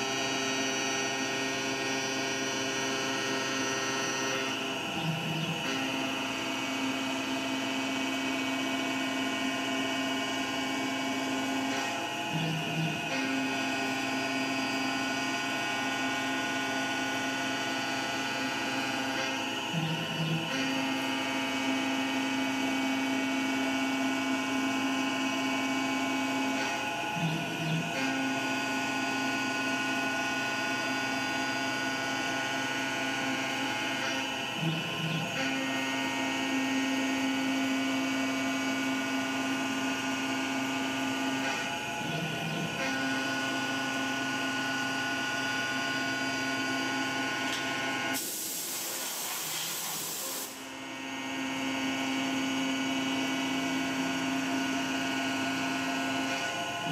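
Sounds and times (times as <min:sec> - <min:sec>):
milling spindle whine: 0:00.0 - 0:48.1
coolant hiss: 0:48.2 - 0:50.6.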